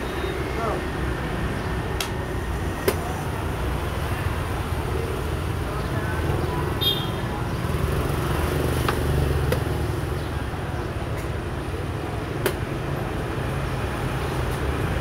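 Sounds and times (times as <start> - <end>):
low rumble of street traffic: 0.0 - 15.0.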